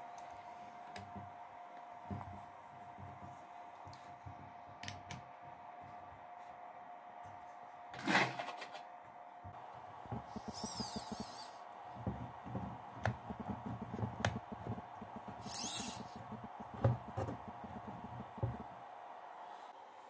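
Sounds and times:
high scratchy squeaks: 15.4 - 16.6.

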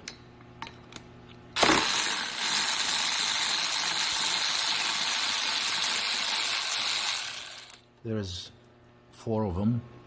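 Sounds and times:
electric ratchet whirring: 1.6 - 7.8.

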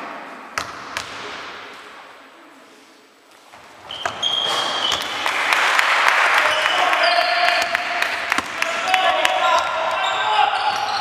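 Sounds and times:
shoes squeaking on wooden floor: 3.3 - 5.2, 9.3 - 11.0
spectators applauding: 5.1 - 9.4.

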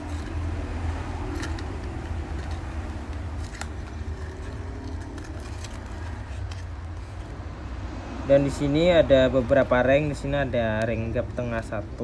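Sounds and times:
cardboard box crinkling: 1.2 - 7.3.

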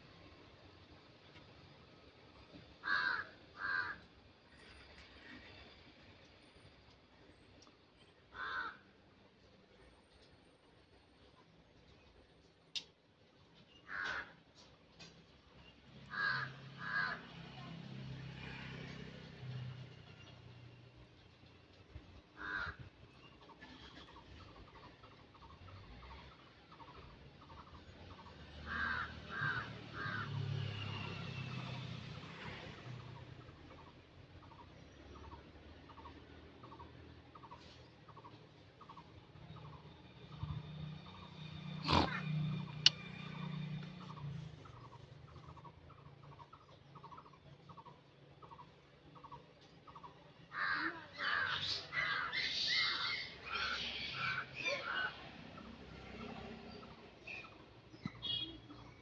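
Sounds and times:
crow cawing: 2.8 - 4.1, 8.3 - 8.9, 13.9 - 14.4, 16.1 - 17.4, 22.4 - 22.9, 28.6 - 30.4, 50.0 - 55.2.

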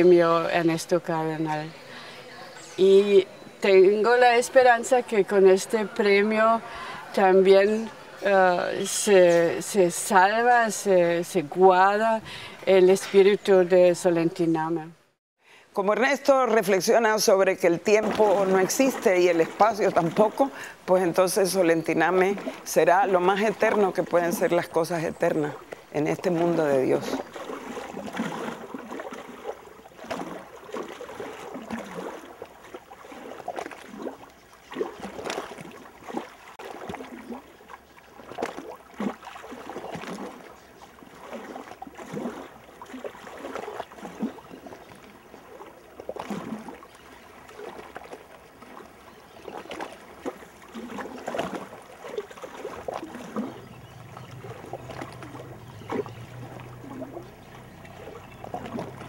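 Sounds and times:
lake waves lapping: 0.0 - 13.9, 16.6 - 59.0
low steady hum: 52.7 - 59.0.

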